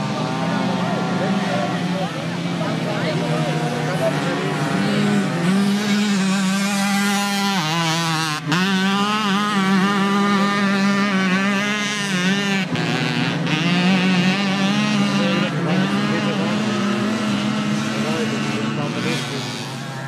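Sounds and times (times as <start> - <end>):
mopeds revving high: 0.0 - 20.0.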